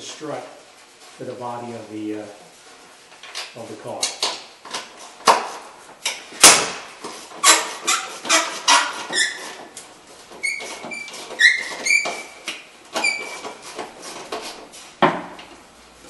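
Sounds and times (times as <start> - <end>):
high squeaks: 7.3 - 14.2.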